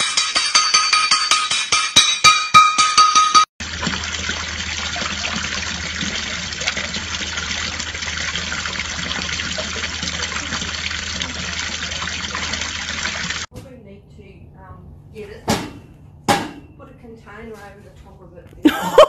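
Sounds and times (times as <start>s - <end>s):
water splashing into pool: 3.6s - 13.5s.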